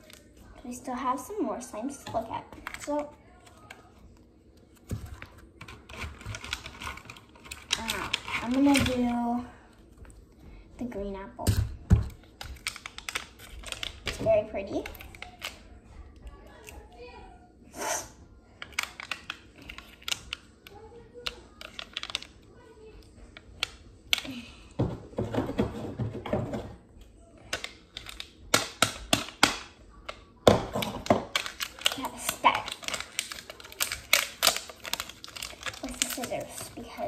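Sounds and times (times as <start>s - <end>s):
fingernails crinkling plastic wrap: 2.6s - 9.0s, 12.1s - 15.7s, 27.5s - 37.0s.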